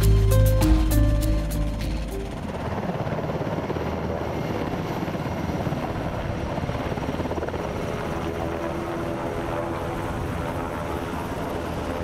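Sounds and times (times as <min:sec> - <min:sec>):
steady whine: 0:00.0 - 0:03.0
helicopter rotors chopping: 0:00.0 - 0:12.0.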